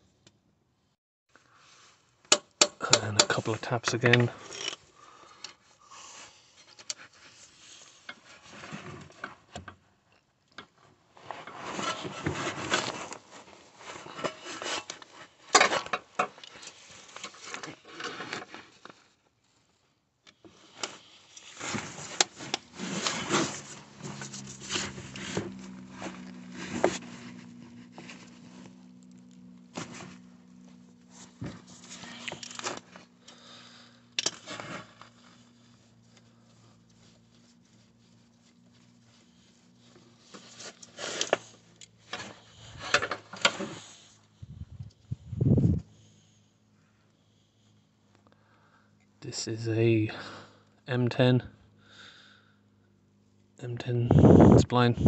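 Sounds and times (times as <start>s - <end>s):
steady low hum: 20.5s - 55.0s
hand tool scraping and rubbing: 20.6s - 28.8s.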